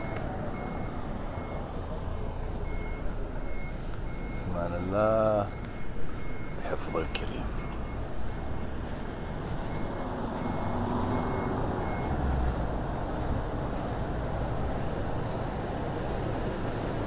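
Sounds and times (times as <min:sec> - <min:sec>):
reversing beeper beeping: 0:00.0 - 0:12.3
low rumble of traffic: 0:00.0 - 0:17.0.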